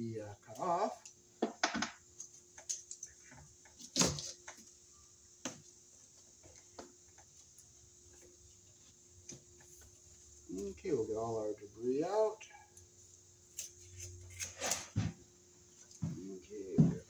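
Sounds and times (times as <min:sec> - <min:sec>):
knife cutting cable sheath: 0:13.5 - 0:14.9.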